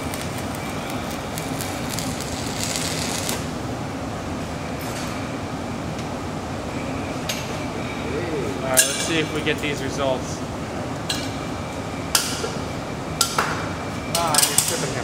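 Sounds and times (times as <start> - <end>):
welding arc crackling: 0.0 - 3.6
low machine hum: 0.0 - 15.0.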